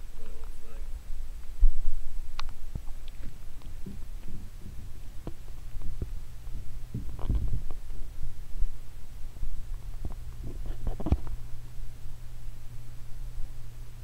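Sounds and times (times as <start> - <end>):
muffled underwater hum: 0.0 - 14.0
dull underwater knocks and rumbles: 1.2 - 11.6.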